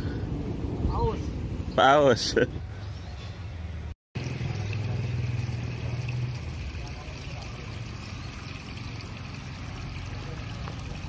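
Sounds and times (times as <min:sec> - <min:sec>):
outdoor background noise: 0:00.0 - 0:11.0
vehicle engine humming: 0:03.3 - 0:11.0.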